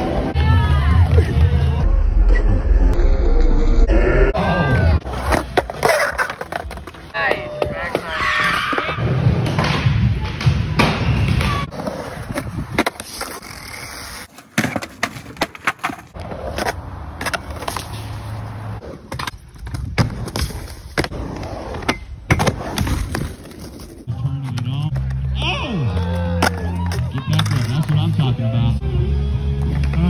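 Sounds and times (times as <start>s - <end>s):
skateboard wheels rolling on concrete: 4.4s - 30.0s
skaters falling thuds: 4.6s - 28.2s
skateboards clacking on ground: 5.0s - 8.9s, 11.5s - 21.1s, 26.0s - 28.2s.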